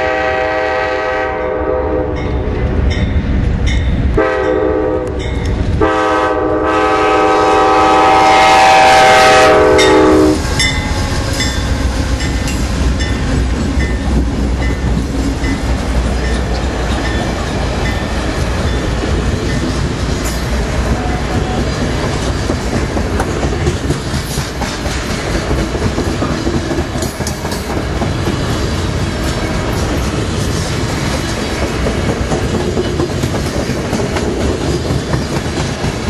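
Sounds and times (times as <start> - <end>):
diesel locomotive rumble: 0.0 - 36.0
railroad crossing bell dinging: 2.1 - 5.7, 9.1 - 21.7
train wheels clacking over rail joints: 8.6 - 36.0.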